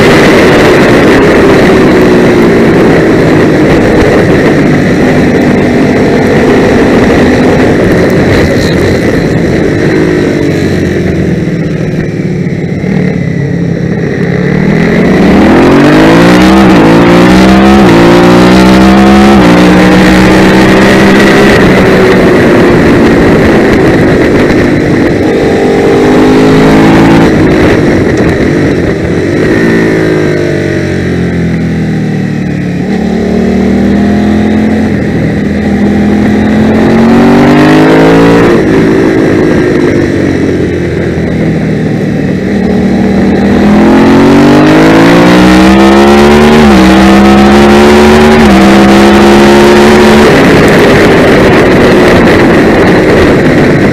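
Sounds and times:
race motorcycle engine accelerating: 0:00.0 - 0:53.9.

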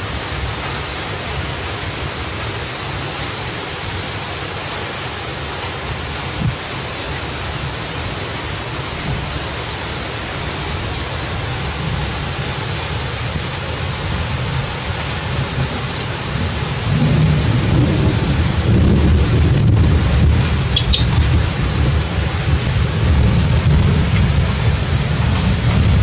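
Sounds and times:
heavy rain falling: 0:00.0 - 0:26.0
low rumble of thunder: 0:10.7 - 0:26.0.

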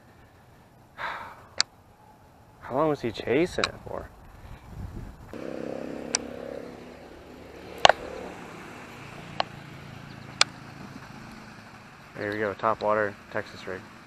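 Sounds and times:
low engine hum: 0:05.3 - 0:14.0.

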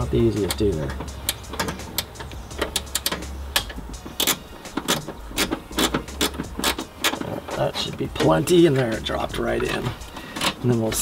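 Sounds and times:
metallic clicks of hand tools: 0:00.4 - 0:09.0.

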